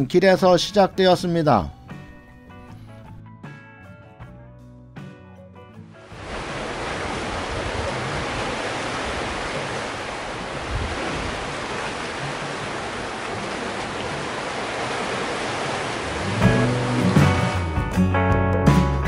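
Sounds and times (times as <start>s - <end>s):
waves breaking on rocky shore: 6.1s - 17.6s.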